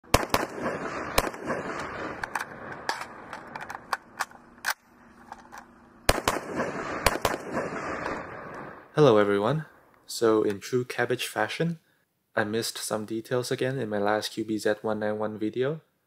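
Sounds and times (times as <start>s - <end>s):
rifle single shots: 0.0s - 4.2s, 6.1s - 8.9s.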